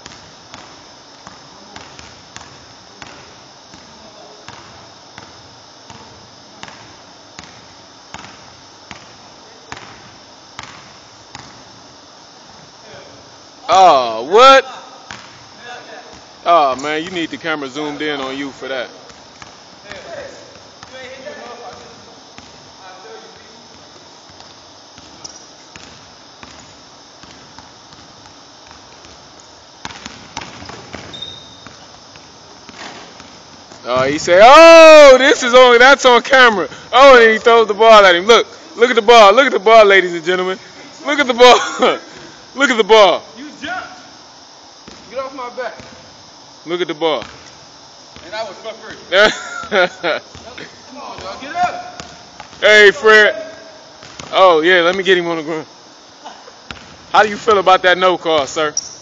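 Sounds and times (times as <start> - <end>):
basketball bouncing on hardwood floor: 24.3 - 34.2, 44.8 - 45.1, 52.0 - 52.6, 54.0 - 55.1.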